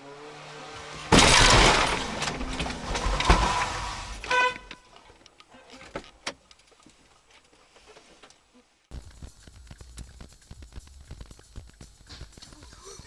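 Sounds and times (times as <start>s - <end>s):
car crash of metal and plastic: 1.0s - 4.8s
car horn blast: 4.2s - 4.8s.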